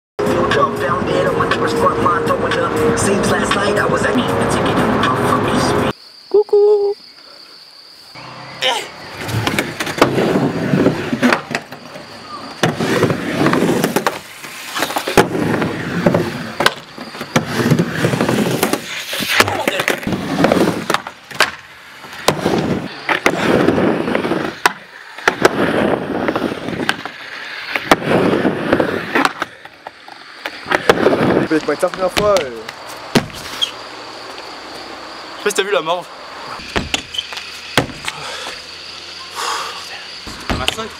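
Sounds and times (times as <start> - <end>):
skateboard wheels rolling: 9.0 - 35.3, 36.2 - 39.2
skateboard deck slapping ramp: 9.2 - 33.8, 36.6 - 38.2.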